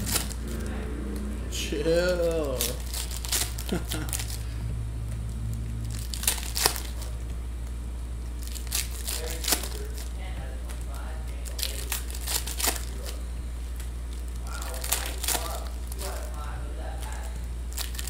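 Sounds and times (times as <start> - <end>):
steady low hum: 0.0 - 18.0
foil wrappers tearing and crinkling: 2.2 - 4.5, 5.8 - 7.2, 8.4 - 18.0.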